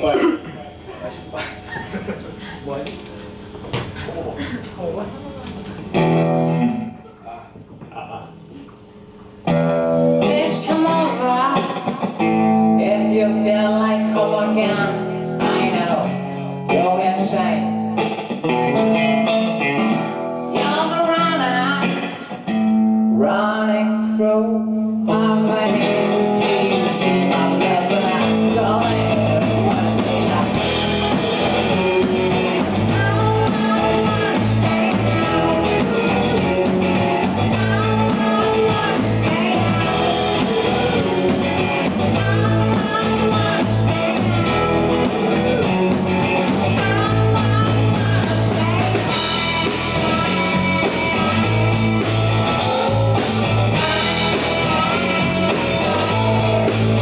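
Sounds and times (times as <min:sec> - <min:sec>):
electric guitars: 0:00.0 - 0:57.0
electric bass: 0:05.8 - 0:07.1, 0:09.4 - 0:57.0
male lead singer: 0:23.1 - 0:57.0
drum kit: 0:28.2 - 0:57.0.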